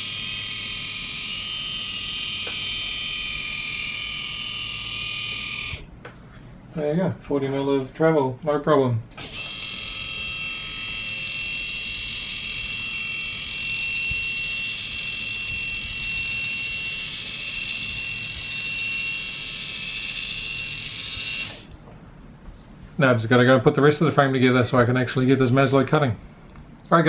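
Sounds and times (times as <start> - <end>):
gearmotor high-pitched whine: 0.0 - 5.9, 9.2 - 21.8.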